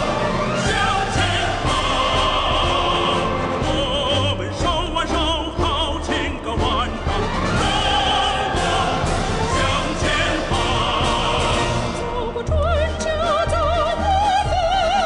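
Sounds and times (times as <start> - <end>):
orchestra playing: 0.0 - 13.8
woman singing with vibrato: 12.0 - 15.0.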